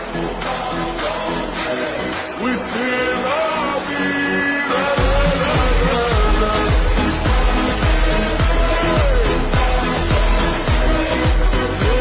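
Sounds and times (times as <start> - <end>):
electronic kick drum: 5.0 - 12.0.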